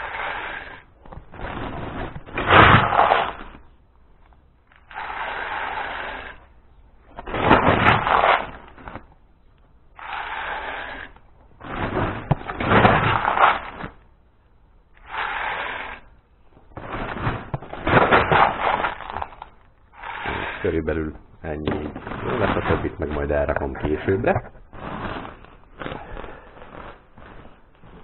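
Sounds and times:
plastic rustling: 11.5s - 14.0s, 16.6s - 28.0s.

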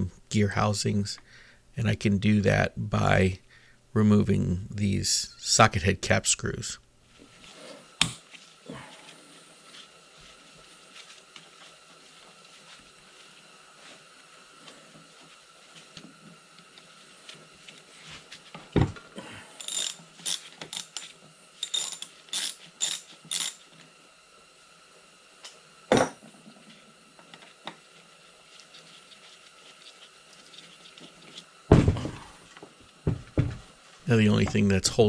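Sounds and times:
ratchet wrench clicking: 19.6s - 23.6s.

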